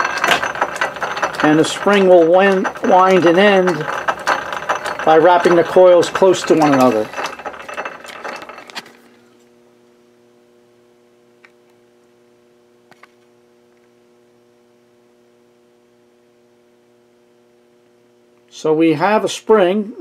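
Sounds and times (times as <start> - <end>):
lathe mechanical clatter: 0.0 - 9.0
faint steady hum: 6.8 - 20.0.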